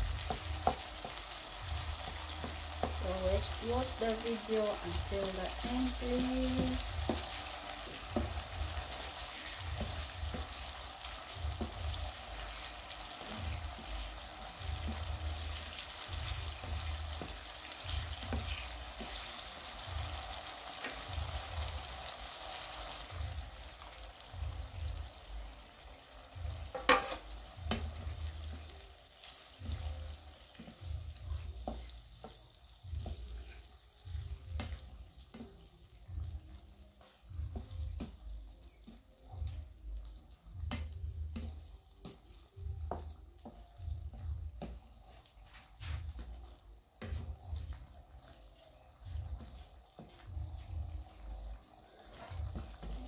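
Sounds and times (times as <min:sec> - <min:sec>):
wooden spoon stirring and scraping: 0:00.0 - 0:24.7, 0:26.5 - 0:53.0
vegetables sizzling in a frying pan: 0:00.0 - 0:53.0
spoon knocking against pan: 0:26.7 - 0:28.0.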